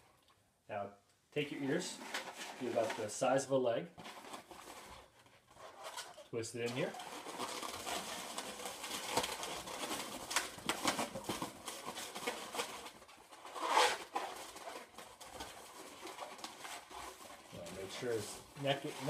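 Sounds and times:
rubber balloon squeaking: 6.8s - 18.1s.

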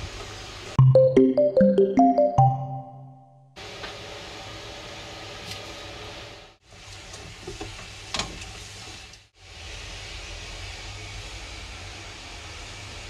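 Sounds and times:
kitchen background hiss: 0.0s - 0.8s, 3.6s - 13.0s.

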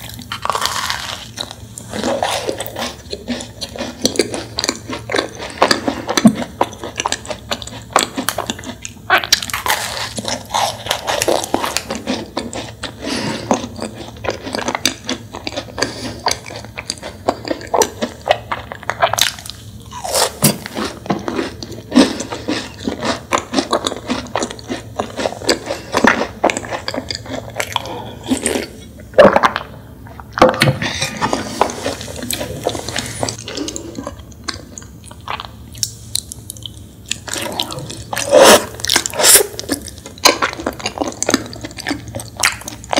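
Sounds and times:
crunchy chewing of macaron: 0.0s - 42.9s.

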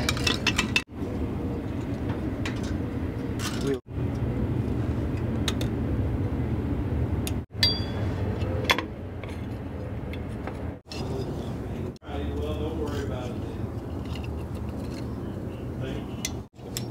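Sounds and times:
low background hum: 0.0s - 16.9s
metal parts clinking: 3.4s - 3.8s, 13.7s - 15.2s.

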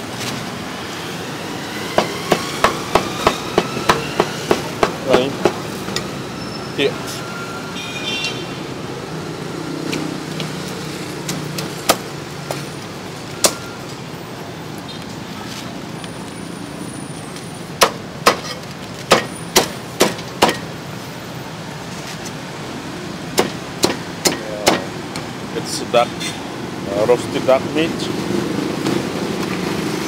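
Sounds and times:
steady background noise: 0.0s - 30.0s
cleaver chopping on wooden block: 17.8s - 18.5s, 19.1s - 20.7s, 23.4s - 24.9s.

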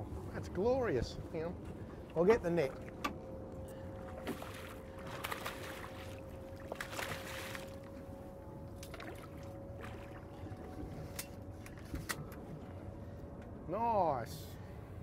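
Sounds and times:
steady hum: 0.0s - 15.0s
fish thrashing water splashing: 4.2s - 7.8s.

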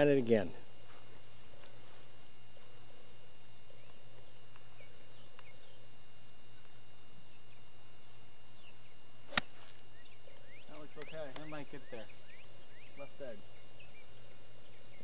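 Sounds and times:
low hum: 0.0s - 15.0s
golf club striking ball: 9.3s - 9.8s.

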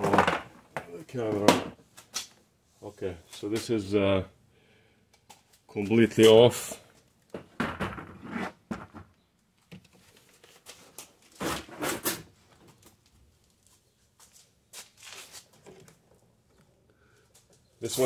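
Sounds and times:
rustling and scraping handling: 7.9s - 18.0s.

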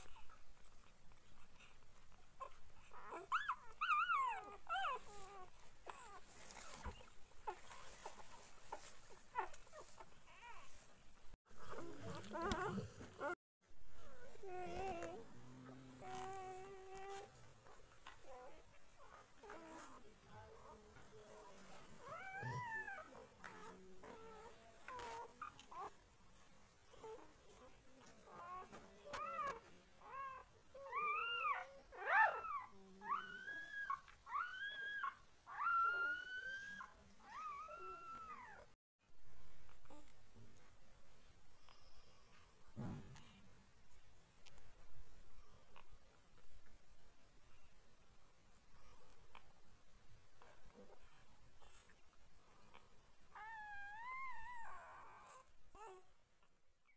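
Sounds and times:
puppies whimpering and squeaking: 0.0s - 10.9s, 11.6s - 15.3s, 16.0s - 38.7s, 52.7s - 56.0s.

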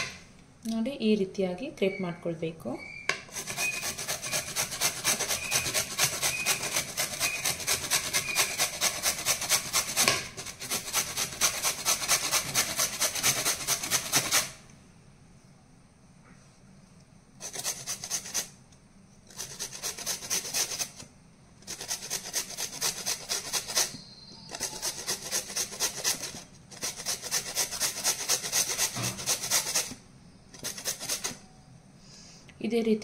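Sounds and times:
carrots rasping on a grater: 3.3s - 14.6s, 17.4s - 18.6s, 19.3s - 30.0s, 30.6s - 31.4s.

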